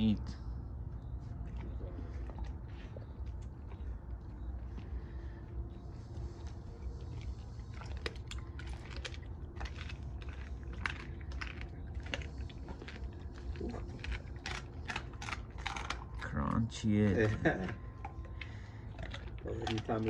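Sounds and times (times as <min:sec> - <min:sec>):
steady low hum: 0:00.0 - 0:20.0
dog crunching bones: 0:00.6 - 0:20.0.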